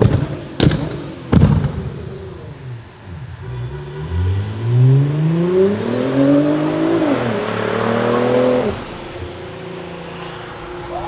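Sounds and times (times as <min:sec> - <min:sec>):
car engine accelerating hard: 0:02.3 - 0:11.0.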